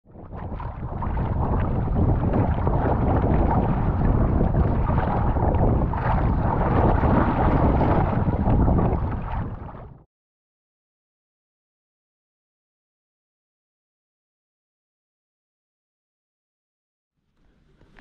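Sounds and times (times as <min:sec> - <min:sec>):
wind rumbling on microphone: 0:00.0 - 0:10.0
water sloshing against kayak: 0:00.2 - 0:10.0, 0:17.4 - 0:18.0.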